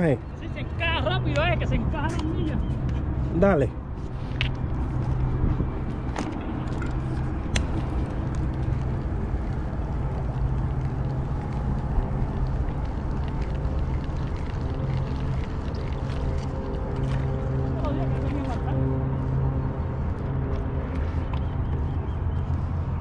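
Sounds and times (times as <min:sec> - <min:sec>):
low engine hum: 0:00.2 - 0:23.0.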